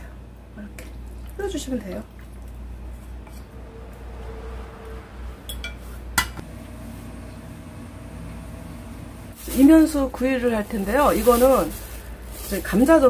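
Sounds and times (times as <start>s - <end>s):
glass clinking against metal pot: 5.5s - 6.4s.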